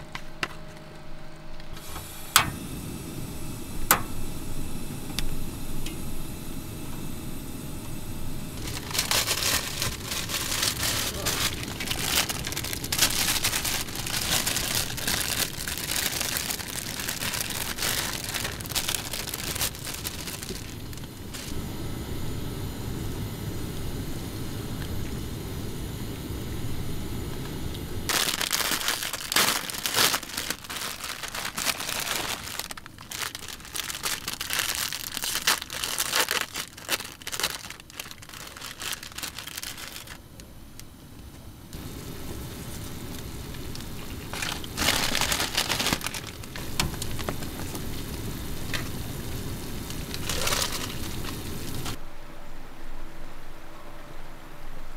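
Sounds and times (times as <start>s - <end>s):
plastic packaging crinkling: 8.4s - 21.6s, 28.1s - 40.5s, 41.8s - 52.0s
water boiling in a pan: 8.4s - 21.8s, 41.8s - 52.0s.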